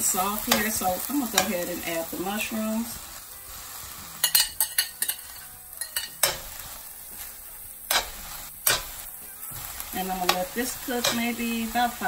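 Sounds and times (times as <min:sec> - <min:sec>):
vegetables sizzling in oil: 0:00.0 - 0:12.0
metal spoon scraping a pan: 0:00.3 - 0:01.8, 0:04.2 - 0:12.0.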